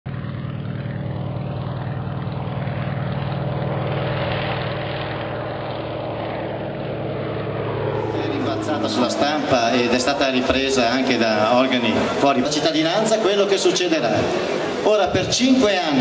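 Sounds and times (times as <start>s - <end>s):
propeller plane engine drone: 0.1s - 16.0s.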